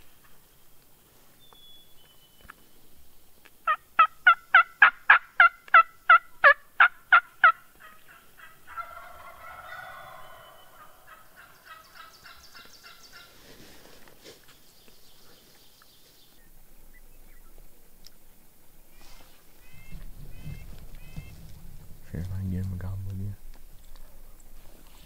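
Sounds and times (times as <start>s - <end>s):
distant turkey gobbling: 3.6s - 13.5s, 19.6s - 22.3s
turkey call yelps: 3.7s - 13.3s, 19.6s - 21.4s.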